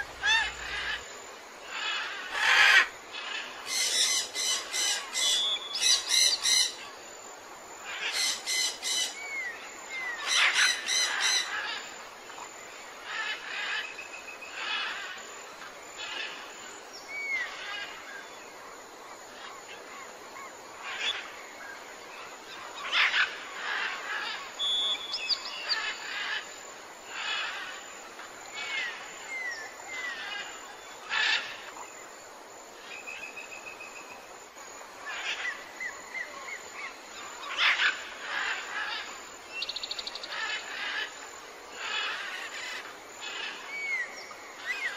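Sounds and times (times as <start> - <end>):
steady background hiss: 0.0 - 44.9.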